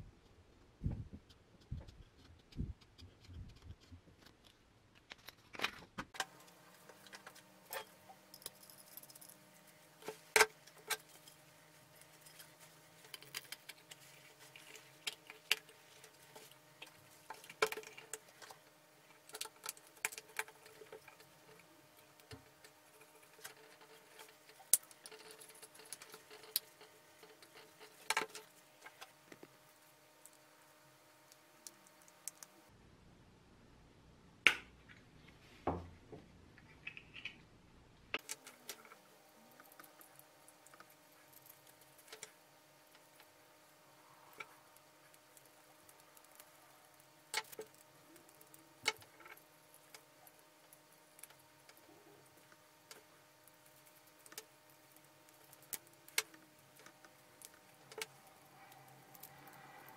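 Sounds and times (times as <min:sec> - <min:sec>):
faint steady hum: 0:00.0 - 0:59.9
metal lamp parts clicking and rattling: 0:05.1 - 0:29.4.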